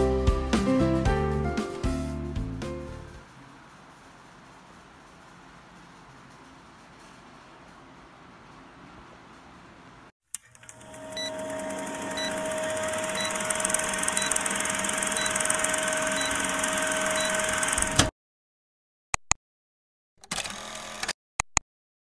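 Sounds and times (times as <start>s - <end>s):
projector-like whirr and hiss: 3.2s - 10.1s, 10.8s - 18.1s.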